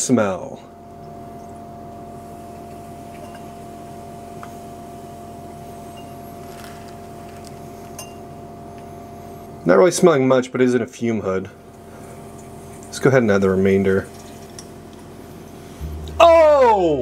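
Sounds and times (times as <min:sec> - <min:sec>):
exhaust fan humming: 0:00.0 - 0:17.0
faint ticks of dripping: 0:01.0 - 0:01.7, 0:02.5 - 0:03.6.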